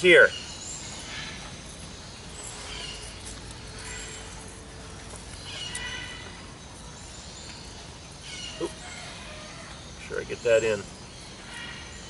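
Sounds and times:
steady low hum: 0.0 - 12.0
high-pitched animal calls: 8.3 - 9.9.

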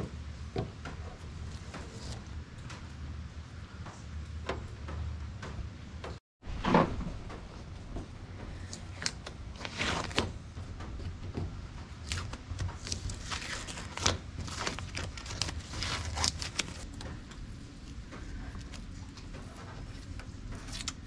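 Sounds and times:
tape peeling and crumpling: 8.6 - 10.4, 11.8 - 17.1, 17.8 - 21.0.

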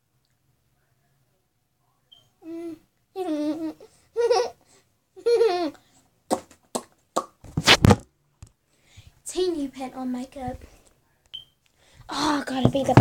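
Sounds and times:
girl making playful vocal sounds: 12.1 - 13.0.

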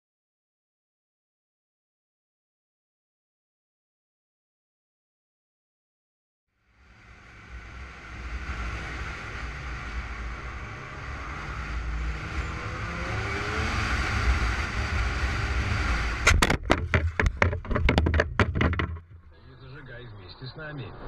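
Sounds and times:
car road and engine rumble: 6.6 - 21.0
tyre and wind noise: 11.3 - 19.3
windscreen breaking: 16.0 - 19.3.

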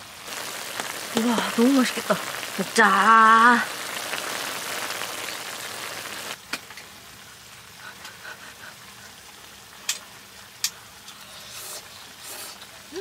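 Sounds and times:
stew bubbling hard: 0.0 - 6.4.

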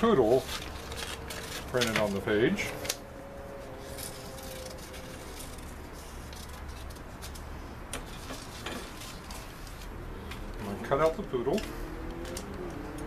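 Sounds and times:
paper handling: 0.0 - 3.0, 3.8 - 12.7
steady low hum: 0.0 - 13.0
scissors snipping paper: 0.4 - 3.0.

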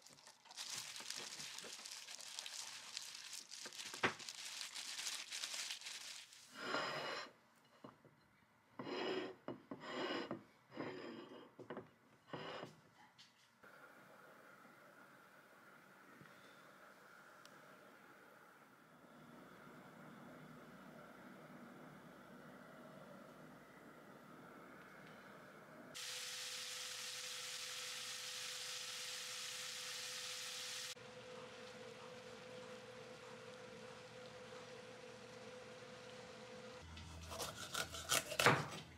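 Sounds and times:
meat sizzling in a frying pan: 0.0 - 6.3, 26.0 - 31.0
water boiling in a pot: 0.0 - 6.6, 25.9 - 36.8
ceramic plate scraping on wooden table: 8.8 - 11.7.

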